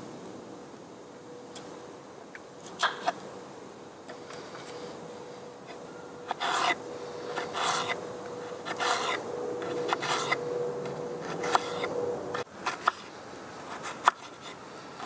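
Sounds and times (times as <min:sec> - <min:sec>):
faint steady tone: 0:00.0 - 0:15.0
knife cutting potato on board: 0:11.2 - 0:11.9.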